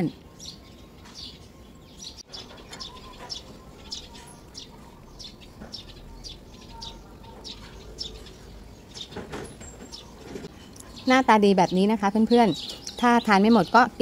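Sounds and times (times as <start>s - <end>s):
small bird chirping: 0.0s - 14.0s.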